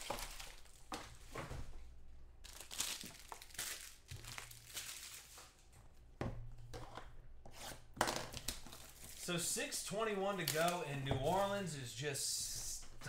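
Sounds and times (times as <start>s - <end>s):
foil wrappers crinkling: 0.0s - 1.3s, 2.4s - 5.7s, 8.3s - 9.5s, 10.2s - 11.6s.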